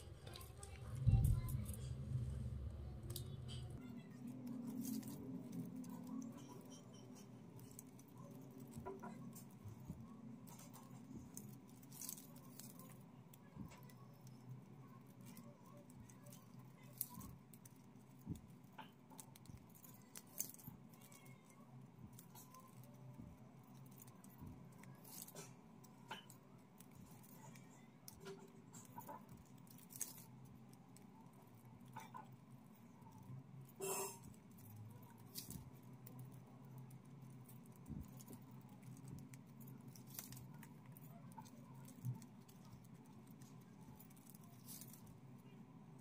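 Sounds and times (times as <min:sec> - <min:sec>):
plastic strips clicking and rustling: 0:00.0 - 0:46.0.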